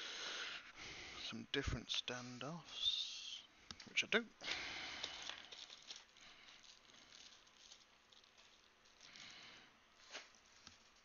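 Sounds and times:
faint rustling: 3.7 - 11.0.

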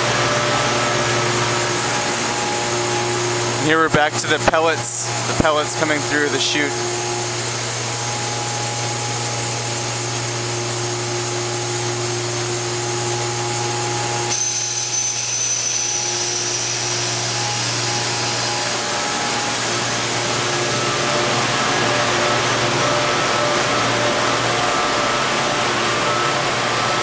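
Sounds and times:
factory machinery humming: 0.0 - 27.0
high machine whine: 0.0 - 27.0.

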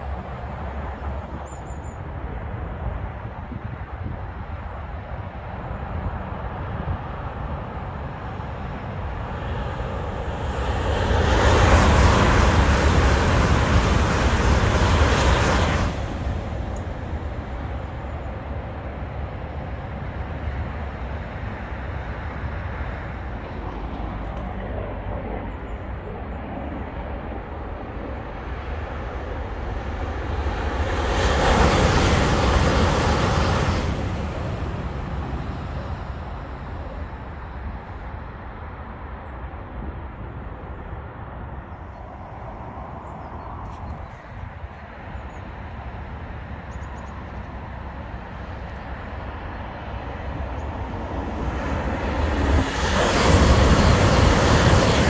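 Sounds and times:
low rumble of motorway traffic: 0.0 - 55.0
high-speed train rushing past: 2.0 - 55.0.

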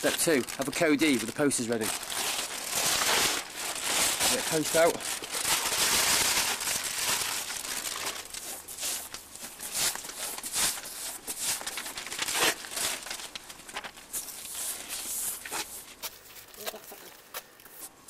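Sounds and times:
paper crinkling: 0.0 - 17.9
brush swishing paste on wall: 8.4 - 11.7.

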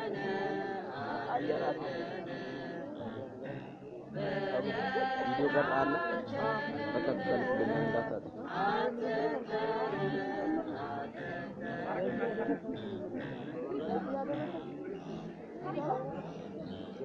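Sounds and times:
voices singing a chant: 0.0 - 17.0.

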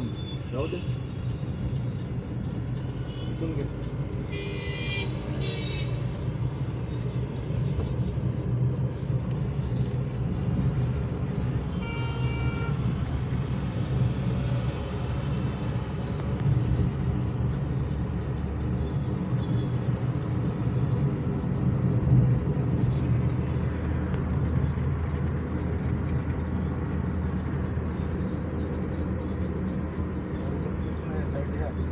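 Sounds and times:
car engine and tyres rumbling: 0.0 - 31.9
car horn toot: 4.3 - 6.0, 11.7 - 12.8.

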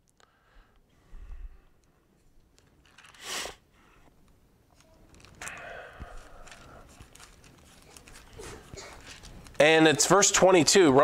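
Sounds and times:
thin pages rustling and flicking: 4.8 - 5.5, 6.1 - 9.9.

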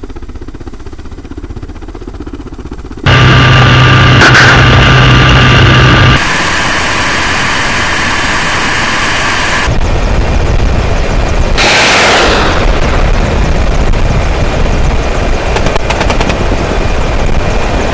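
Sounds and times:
helicopter turbine and rotor: 0.0 - 17.9.

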